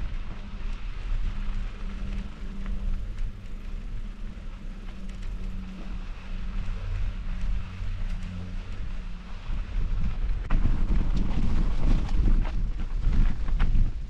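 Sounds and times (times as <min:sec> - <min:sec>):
bicycle tyre noise: 0:00.0 - 0:14.0
steady low hum: 0:00.0 - 0:14.0
wind rumbling on microphone: 0:00.0 - 0:14.0
faint clicks: 0:00.1 - 0:09.4.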